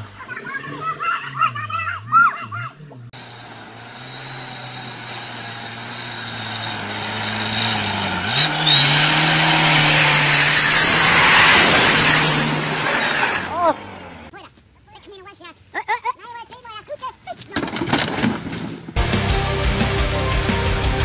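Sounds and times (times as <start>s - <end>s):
truck engine passing by: 0.0s - 14.3s
steady high whine: 3.0s - 14.3s.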